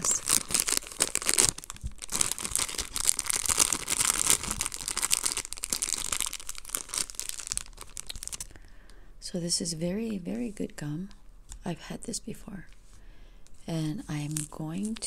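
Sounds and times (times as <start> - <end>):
plastic wrapper crinkling: 0.0 - 8.6, 14.0 - 15.0.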